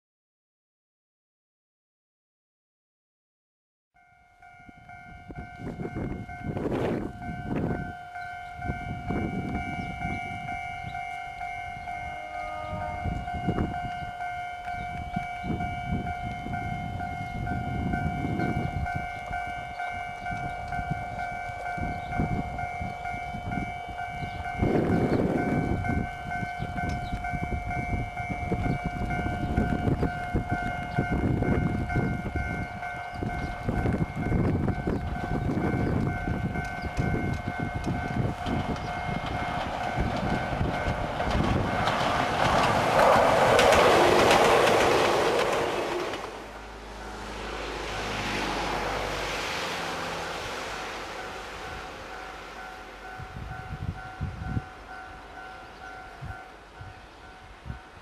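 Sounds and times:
steady high ringing tone: 4.0s - 41.0s
electric train running: 4.4s - 58.0s.

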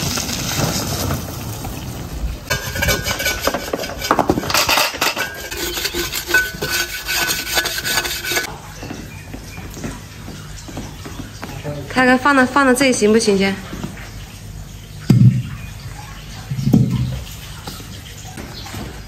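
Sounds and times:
hoe scraping muddy soil: 0.0s - 8.5s
metal buckets set down: 2.5s - 8.5s.

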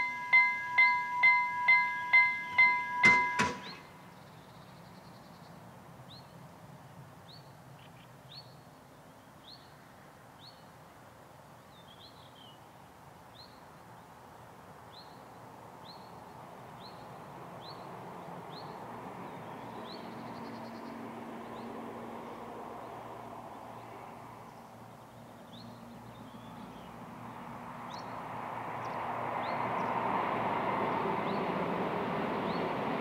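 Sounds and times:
train rumble: 0.0s - 4.1s, 26.6s - 33.0s.

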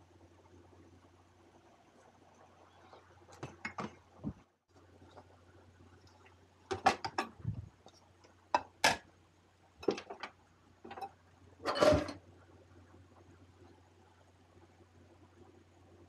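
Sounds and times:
faint low hum: 0.0s - 16.0s
dishes clattering: 9.8s - 10.2s, 10.9s - 12.2s
dishes and cutlery clinking: 10.9s - 12.2s.

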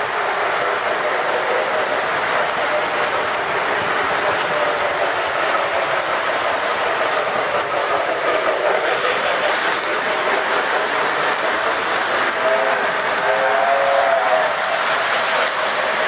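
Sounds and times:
model train wheels rolling on rails: 0.0s - 16.0s.

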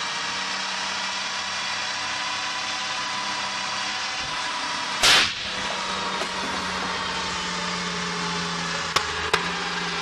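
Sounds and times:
loud sharp bang: 5.0s - 5.6s.

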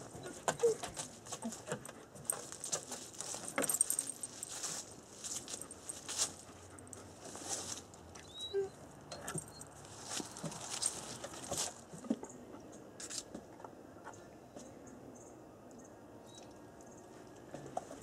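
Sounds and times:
dog paws clicking on wooden deck: 0.0s - 8.2s, 10.1s - 12.3s.

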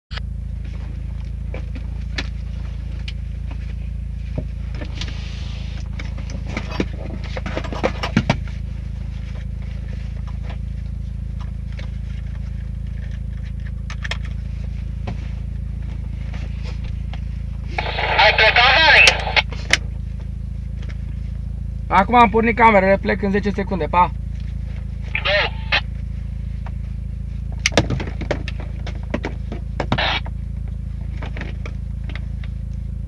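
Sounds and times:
car engine idling: 0.1s - 33.0s.

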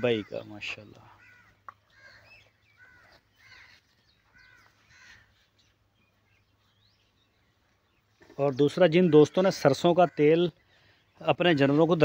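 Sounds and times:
crows cawing faintly: 0.0s - 5.7s, 8.2s - 11.2s.

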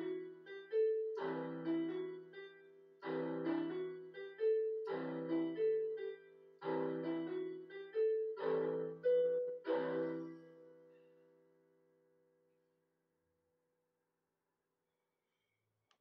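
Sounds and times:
electronic keyboard piano chords: 0.0s - 11.1s
single keyboard melody notes: 0.0s - 11.4s.

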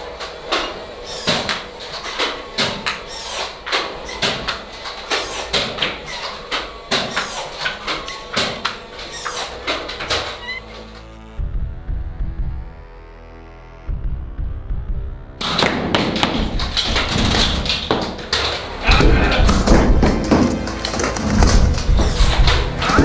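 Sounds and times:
low hum: 7.8s - 15.6s, 16.2s - 23.0s.

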